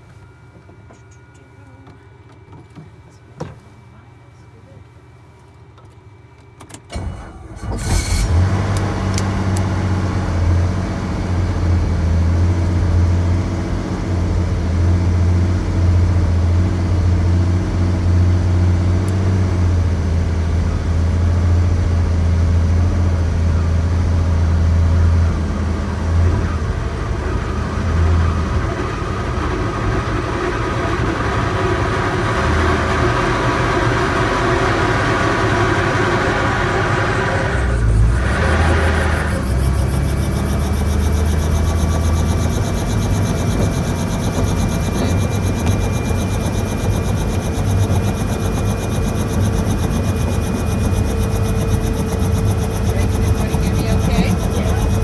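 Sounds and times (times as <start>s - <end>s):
helicopter engine starting: 6.7s - 16.9s, 25.8s - 55.0s.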